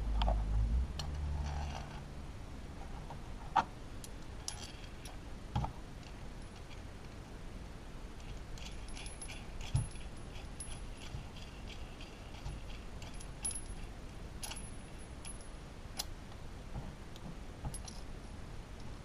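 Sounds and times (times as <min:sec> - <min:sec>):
small metal parts jingling: 0:04.4 - 0:05.2, 0:08.2 - 0:15.6, 0:17.7 - 0:18.4.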